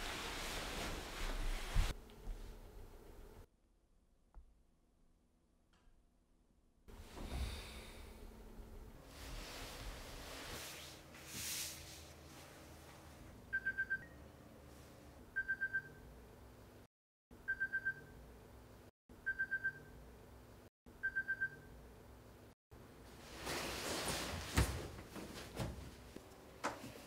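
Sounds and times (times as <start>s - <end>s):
phone alarm beeping: 13.5s - 14.2s, 15.4s - 16.0s, 17.5s - 18.1s, 19.3s - 19.9s, 21.0s - 21.7s.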